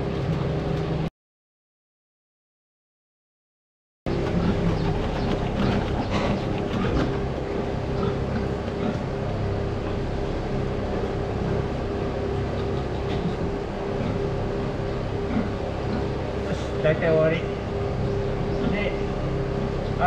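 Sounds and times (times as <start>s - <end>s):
pump running steadily: 4.1s - 20.0s.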